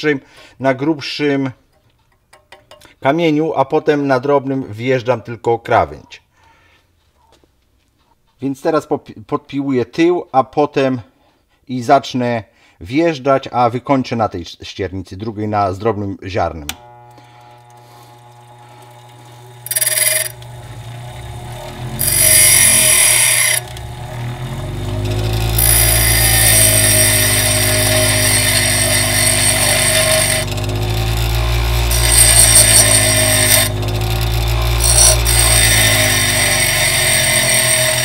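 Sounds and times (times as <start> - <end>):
bench grinder grinding drill bit: 16.7 - 38.0
grinder motor hum: 16.7 - 38.0.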